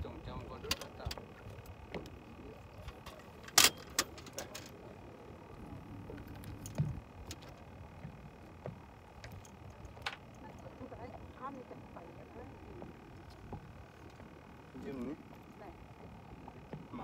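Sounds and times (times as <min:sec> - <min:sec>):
fishing gear clicks and knocks: 0:02.8 - 0:04.8, 0:06.0 - 0:10.7.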